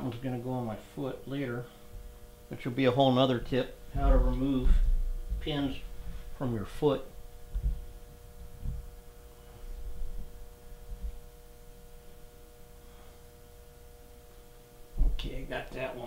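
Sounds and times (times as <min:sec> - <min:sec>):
steady electrical hum: 0:00.0 - 0:16.0
dull low knocks: 0:03.9 - 0:06.3, 0:07.4 - 0:09.0.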